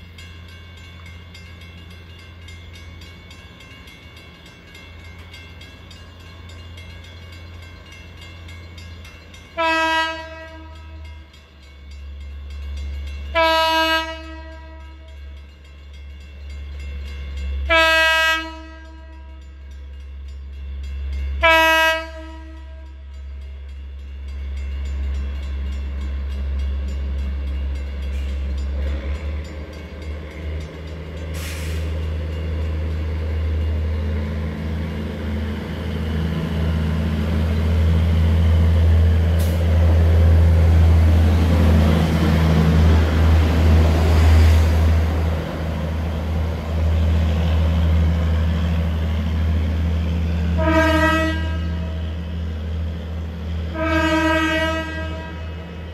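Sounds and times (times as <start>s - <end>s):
rail car engine drone and rolling: 0.0s - 55.9s
train horn blast: 9.6s - 11.1s, 13.3s - 15.2s, 17.7s - 19.5s, 21.4s - 23.1s, 50.6s - 52.2s, 53.7s - 55.6s.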